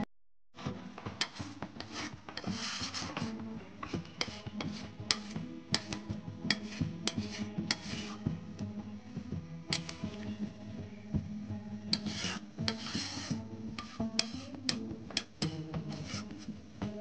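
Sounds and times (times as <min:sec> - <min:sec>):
metal spatula scraping metal pan: 0:01.2 - 0:08.3, 0:11.9 - 0:16.5.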